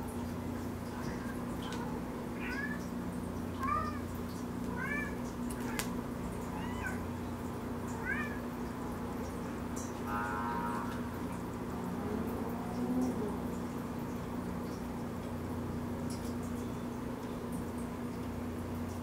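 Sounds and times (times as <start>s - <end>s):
steady low hum: 0.0s - 19.0s
cat meowing: 1.0s - 2.9s, 3.6s - 4.0s, 4.7s - 5.9s, 6.5s - 7.1s, 7.9s - 8.5s.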